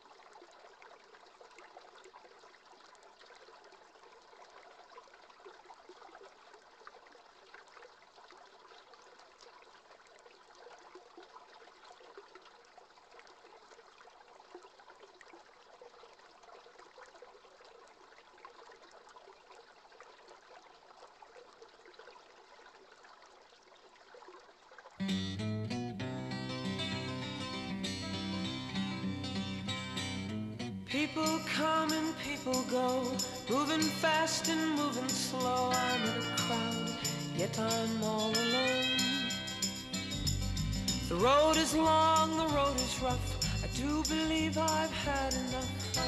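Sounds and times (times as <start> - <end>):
river flowing: 30.9 - 46.0.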